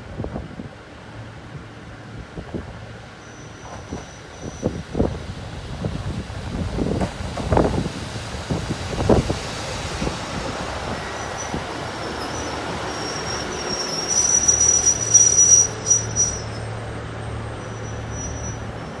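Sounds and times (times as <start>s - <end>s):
train rolling noise: 0.0s - 19.0s
high brake squeal: 3.2s - 4.8s, 10.9s - 19.0s
train wheels thumping: 6.7s - 9.4s.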